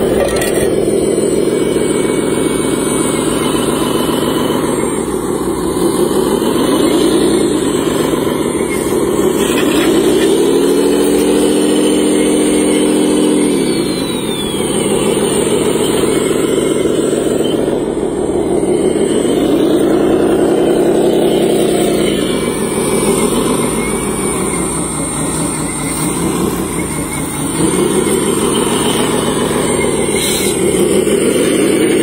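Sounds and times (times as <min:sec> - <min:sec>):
toy loader motors whirring: 0:00.0 - 0:32.0.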